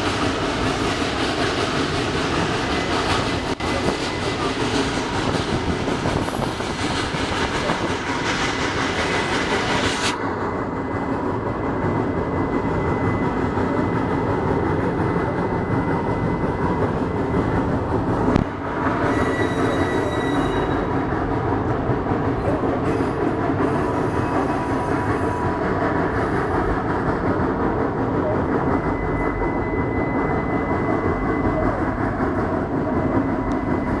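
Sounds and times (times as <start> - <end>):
train wheels rumbling on rails: 0.0 - 34.0
wheel squeal: 19.0 - 20.9.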